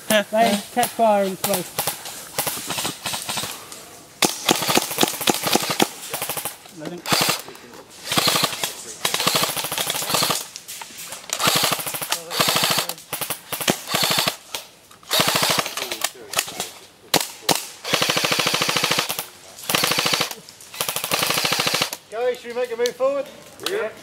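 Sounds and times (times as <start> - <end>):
airsoft rifles firing bursts: 0.5 - 3.6, 4.2 - 10.5, 11.3 - 14.5, 15.1 - 16.0, 17.1 - 22.0.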